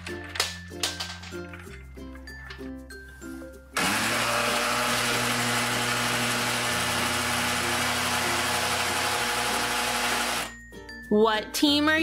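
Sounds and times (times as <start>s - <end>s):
toy blender whirring: 3.8s - 10.6s.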